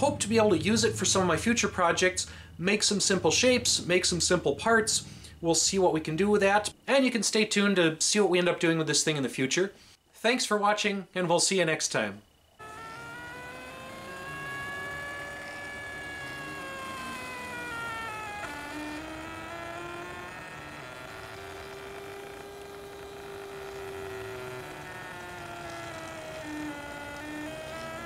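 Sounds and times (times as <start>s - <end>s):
stepper motors whining: 0.0s - 6.6s, 12.6s - 28.0s.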